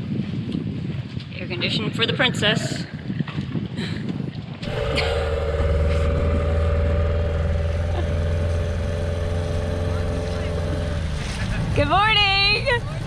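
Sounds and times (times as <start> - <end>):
outboard motor running: 4.6 - 13.0.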